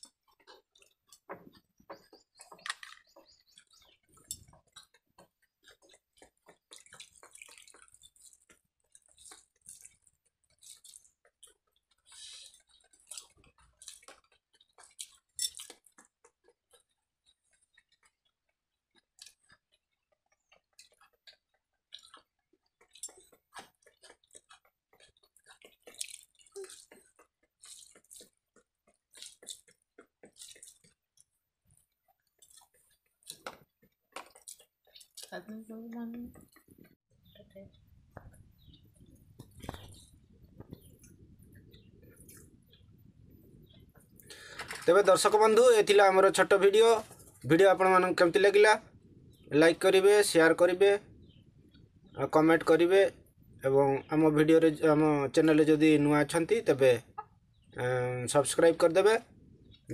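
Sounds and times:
chewing: 0.0s - 35.4s, 36.3s - 45.0s
wet squishing of rice mixed by hand: 0.0s - 35.4s.

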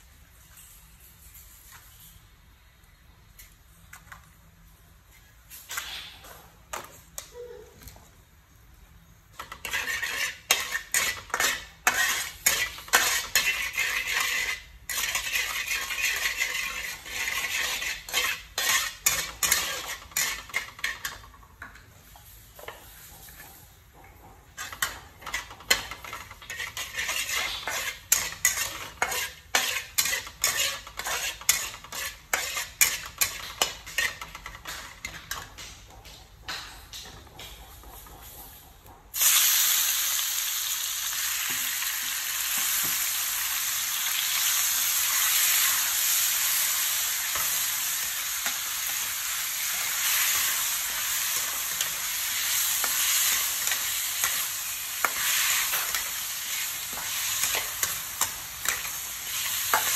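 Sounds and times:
metal spatula scraping wok: 9.3s - 23.8s, 24.4s - 35.7s, 42.5s - 59.9s.

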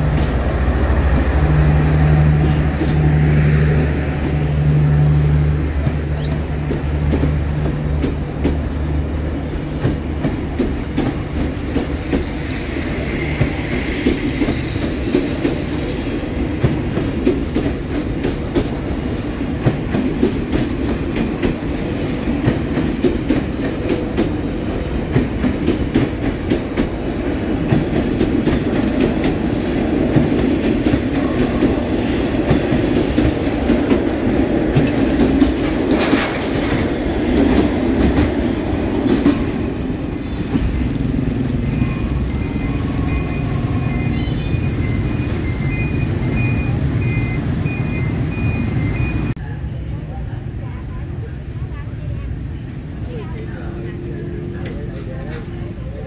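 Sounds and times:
train wheels clattering: 0.0s - 46.6s
locomotive engine drone: 39.5s - 56.0s.

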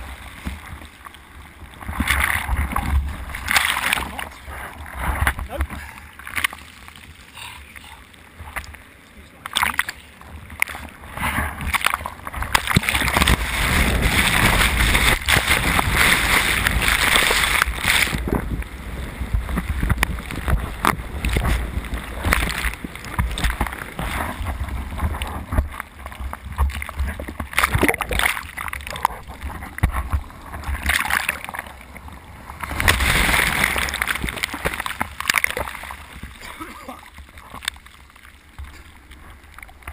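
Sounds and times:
muffled underwater churning: 0.0s - 39.9s
whitewater rushing: 9.4s - 19.8s.

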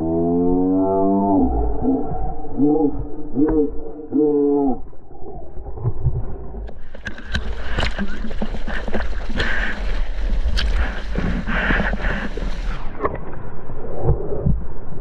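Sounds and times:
low rumble of moving water: 0.0s - 15.0s
water splashing around surfboard: 6.2s - 14.8s.

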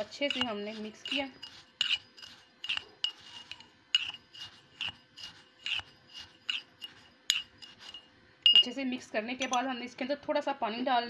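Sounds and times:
spoon scraping granules in glass jar: 0.0s - 8.8s.

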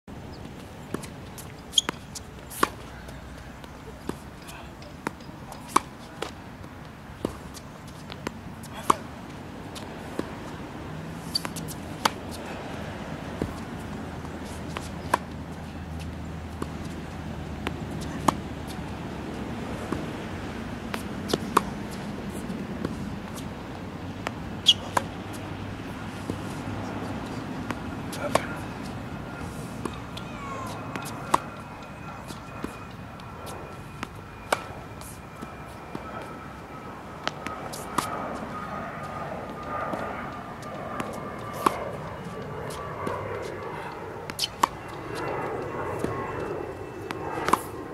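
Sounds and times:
racket hitting tennis ball: 0.9s - 6.4s, 7.2s - 9.1s, 9.7s - 36.4s, 37.2s - 40.0s, 40.6s - 45.0s, 47.4s - 47.7s
faint high whine: 0.9s - 47.9s
ball bouncing: 1.8s - 2.8s.

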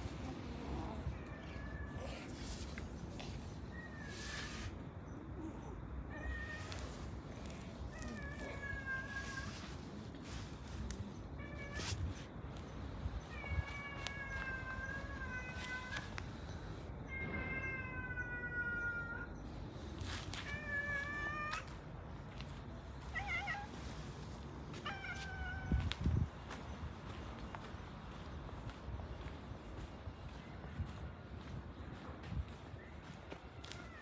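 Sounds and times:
cat meowing: 6.1s - 9.8s, 23.0s - 23.8s, 24.7s - 26.0s.

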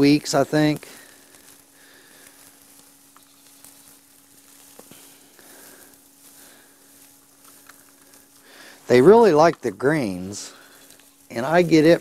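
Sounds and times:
dry hay rustling and crackling: 0.0s - 12.0s
steady low hum: 0.0s - 12.0s.

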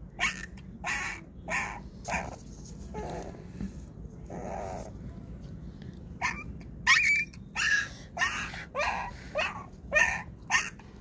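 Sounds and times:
puppy yelping in pain: 0.2s - 3.4s, 6.2s - 10.8s.

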